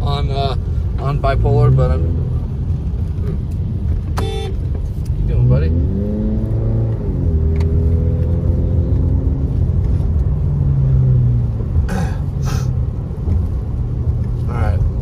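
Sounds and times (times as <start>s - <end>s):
car engine from inside cabin: 0.0s - 15.0s
tyres on wet road: 0.0s - 15.0s.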